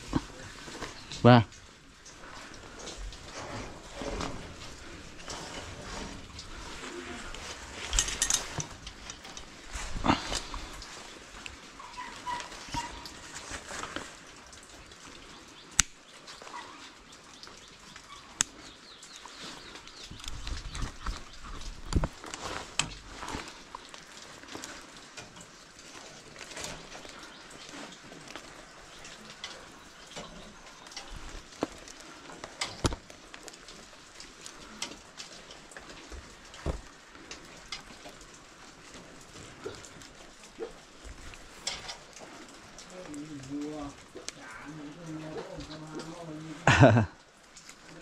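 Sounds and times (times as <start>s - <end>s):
cable rustling and knocks: 20.0s - 42.9s.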